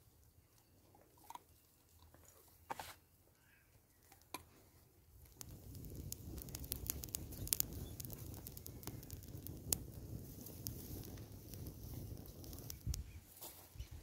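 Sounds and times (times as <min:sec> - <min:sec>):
campfire crackling and popping: 0:04.0 - 0:14.0
low fire rush: 0:05.2 - 0:13.2.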